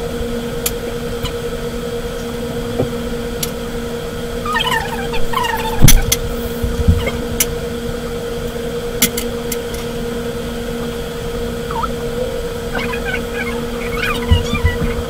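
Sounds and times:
steady room hum: 0.0s - 15.0s.

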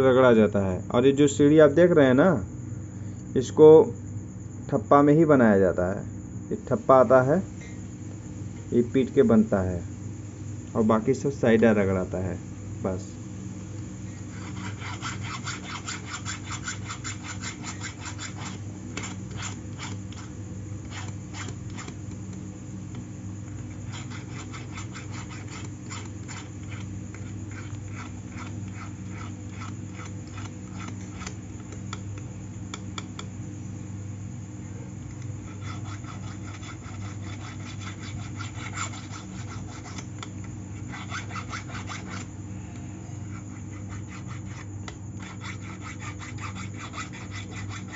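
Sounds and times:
steady low hum: 0.0s - 47.9s
hand file rasping on metal: 14.3s - 22.1s, 23.6s - 31.8s, 35.4s - 42.3s, 43.2s - 47.9s.

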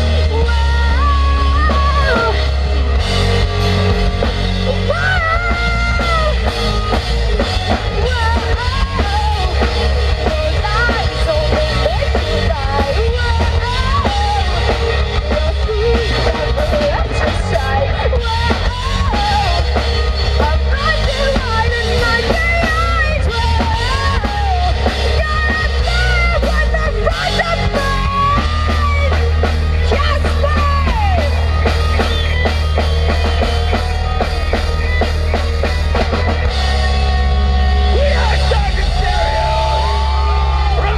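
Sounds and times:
bass guitar: 0.0s - 40.9s
drum kit: 0.0s - 40.9s
electric guitar: 0.0s - 40.9s
person singing: 7.7s - 29.2s.

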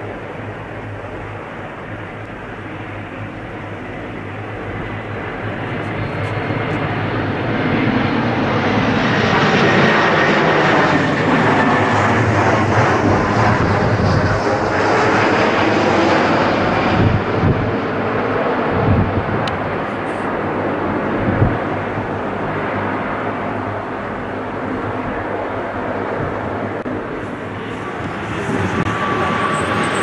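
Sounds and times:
jet engines roaring: 0.0s - 30.0s.

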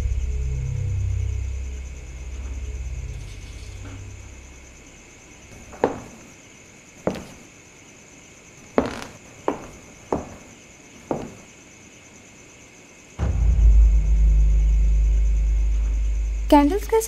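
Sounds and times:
loud low rumble: 0.0s - 5.5s, 13.2s - 17.0s
faint high whine: 0.0s - 6.4s, 13.2s - 17.0s
sharp echoing knocks: 13.2s - 16.5s.

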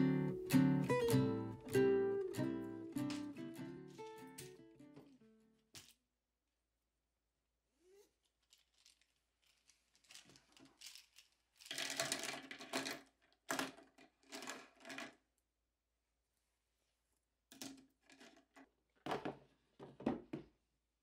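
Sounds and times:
plastic pens clattering on desk: 8.4s - 15.2s.

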